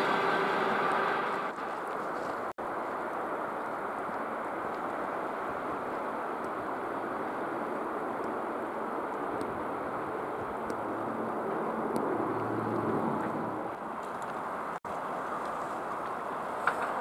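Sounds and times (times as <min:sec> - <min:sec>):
electric train running: 0:00.0 - 0:01.8.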